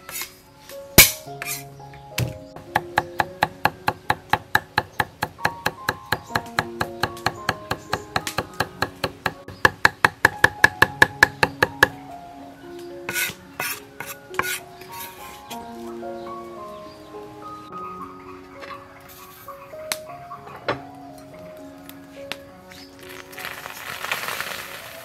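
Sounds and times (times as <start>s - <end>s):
soft instrumental music: 0.0s - 25.0s
cleaver chopping on wooden block: 2.2s - 11.9s.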